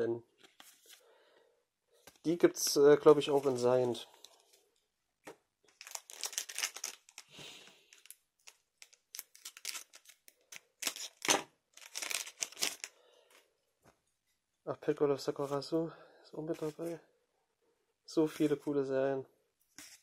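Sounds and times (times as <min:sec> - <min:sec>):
foil pack crinkling: 0:05.7 - 0:12.9.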